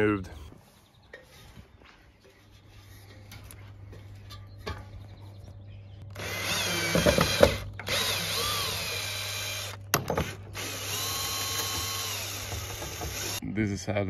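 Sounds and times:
cordless drill motor whine: 0:06.1 - 0:13.4.

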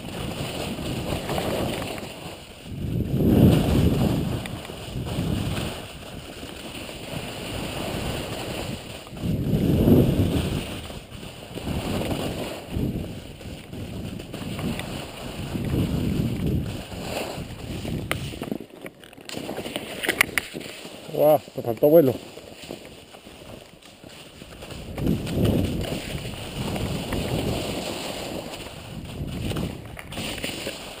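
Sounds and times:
skis scraping over snow: 0:00.0 - 0:31.0
wind buffeting microphone: 0:02.5 - 0:06.3, 0:07.2 - 0:18.6, 0:24.5 - 0:31.0.

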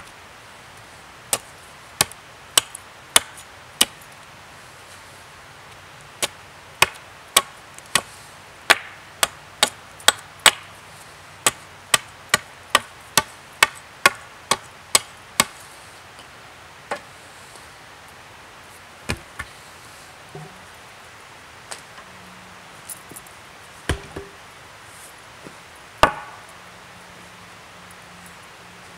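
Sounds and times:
axe chopping wood: 0:02.0 - 0:04.0, 0:06.2 - 0:08.1, 0:08.7 - 0:10.7, 0:11.4 - 0:15.5, 0:23.9 - 0:24.4, 0:26.0 - 0:26.4.

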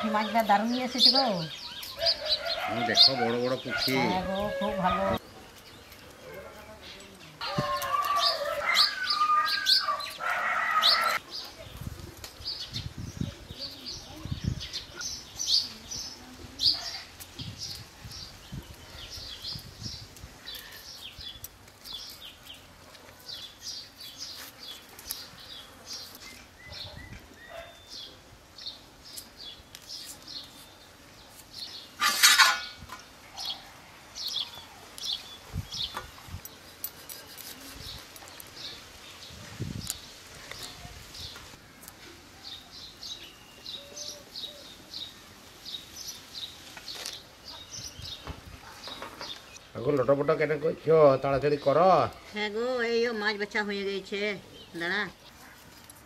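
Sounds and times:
small birds chirping: 0:00.0 - 0:56.0
loud animal call: 0:07.4 - 0:11.2.

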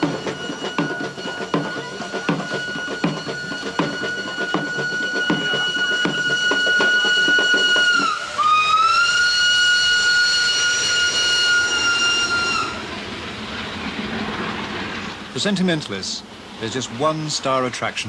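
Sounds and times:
steam locomotive whistle: 0:00.0 - 0:13.1.

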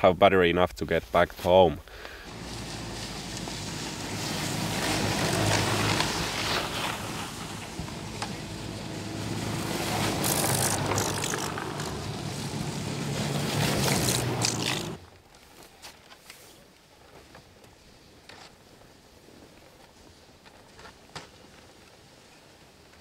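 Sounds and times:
electric snowmobiles driving past: 0:02.3 - 0:15.0.

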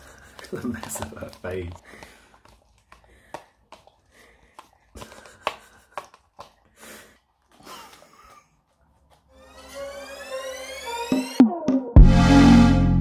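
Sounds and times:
dog licking plastic pot: 0:00.0 - 0:09.3.

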